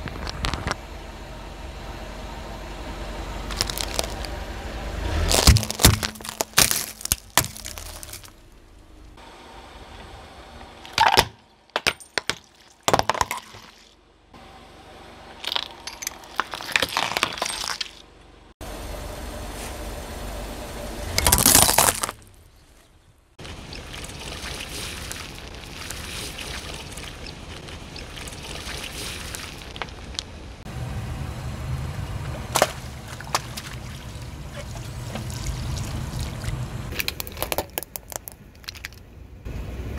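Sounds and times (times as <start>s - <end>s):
objects crunching under car tyre: 0.0s - 0.8s, 3.4s - 9.2s, 10.8s - 14.0s, 15.3s - 18.2s, 21.2s - 30.7s, 32.4s - 39.2s
low rumble: 18.0s - 37.0s.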